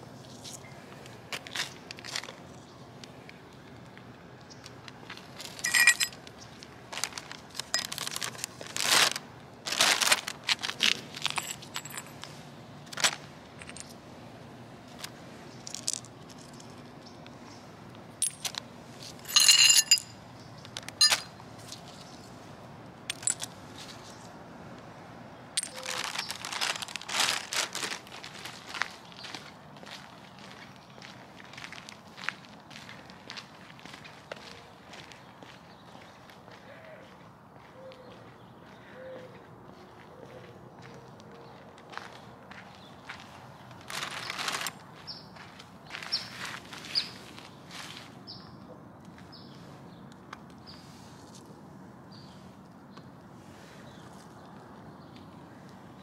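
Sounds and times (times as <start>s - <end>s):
glass shards clinking on concrete: 5.5s - 6.2s, 7.6s - 8.1s, 11.2s - 12.2s, 18.2s - 18.6s, 19.2s - 20.2s, 21.0s - 21.3s, 25.6s - 26.3s
plastic bag rustling: 6.9s - 12.0s, 25.7s - 28.9s, 43.9s - 44.7s.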